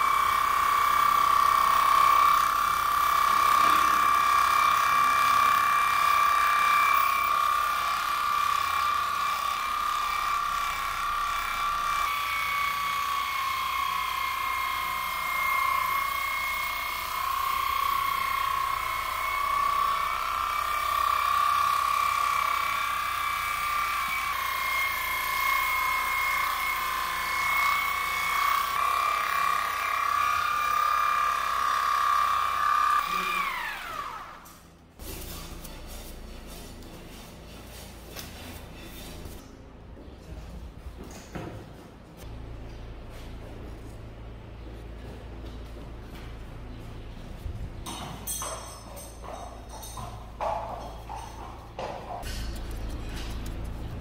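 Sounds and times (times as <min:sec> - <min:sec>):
electric clippers motor whine: 0:00.0 - 0:34.6.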